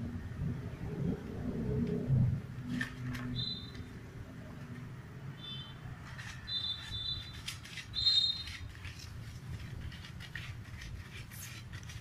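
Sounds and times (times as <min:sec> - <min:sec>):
kitten crunching dry kibble: 0:07.2 - 0:12.0.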